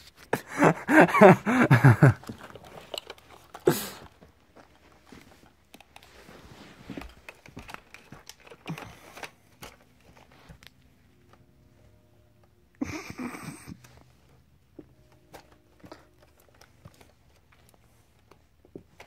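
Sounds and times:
kitten playing on carpet: 0:02.6 - 0:11.2.

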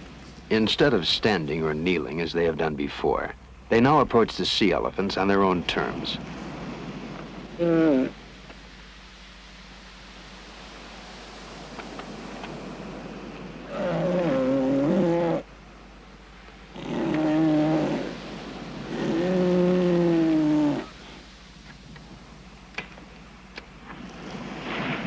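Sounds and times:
steady background hiss: 0:00.0 - 0:25.0
elephant seals calling: 0:07.5 - 0:08.2, 0:13.6 - 0:15.5, 0:16.7 - 0:21.2.

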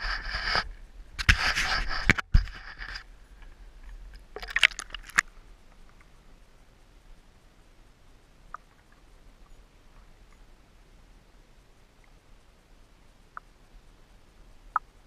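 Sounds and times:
muffled underwater hush: 0:00.0 - 0:07.0
water splashing: 0:03.9 - 0:05.4.

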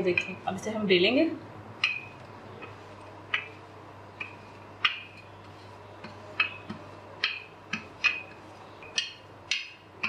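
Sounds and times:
rolling pin clicking on countertop: 0:06.0 - 0:09.8.

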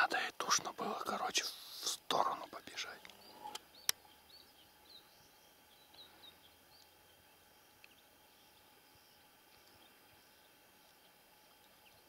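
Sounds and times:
small bird chirping: 0:00.6 - 0:12.0.

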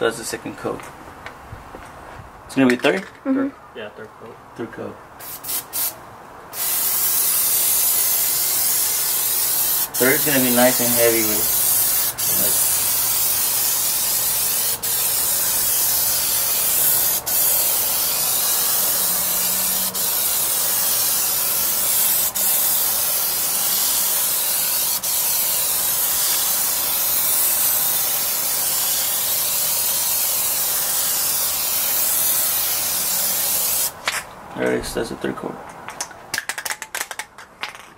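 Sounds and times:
aerosol can spraying: 0:05.2 - 0:06.0, 0:06.6 - 0:34.0.

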